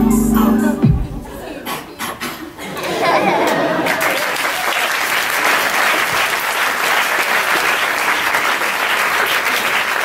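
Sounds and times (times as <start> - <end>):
audience applauding: 3.4 - 10.0.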